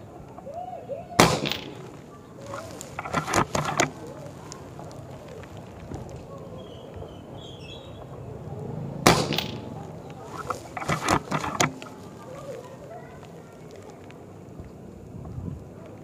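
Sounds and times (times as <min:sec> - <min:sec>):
air rifle firing: 0:01.2 - 0:04.0, 0:09.1 - 0:09.7, 0:10.3 - 0:12.0
sharp clicks and knocks: 0:01.3 - 0:06.1, 0:09.1 - 0:12.2.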